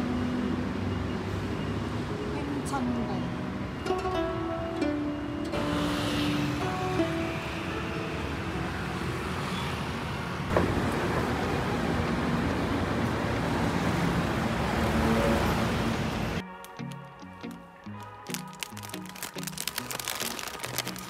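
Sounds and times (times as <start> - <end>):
traffic passing: 0.0 - 21.0
music: 2.1 - 9.0, 16.4 - 21.0.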